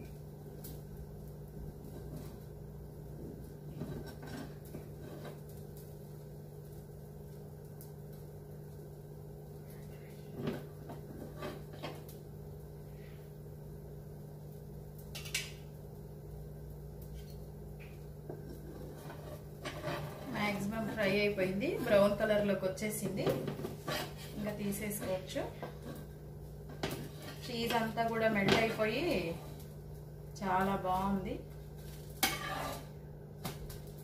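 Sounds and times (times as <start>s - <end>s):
steady low hum: 0.0s - 34.0s
metal spatula scraping pan: 18.5s - 22.2s, 23.5s - 26.1s, 27.0s - 28.0s, 32.2s - 33.0s.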